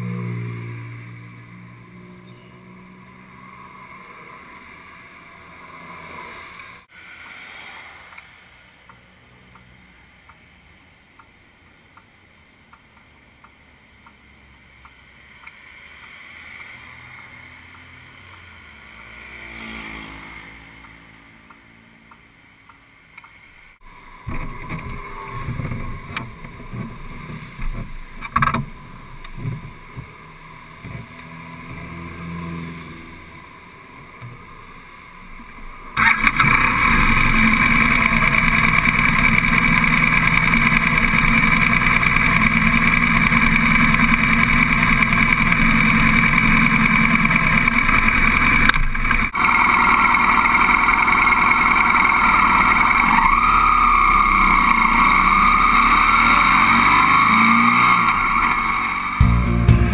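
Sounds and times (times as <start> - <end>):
vehicle passing faintly: 0.0 - 10.1, 16.2 - 22.0
motorcycle engine running: 36.0 - 53.0, 59.2 - 59.9.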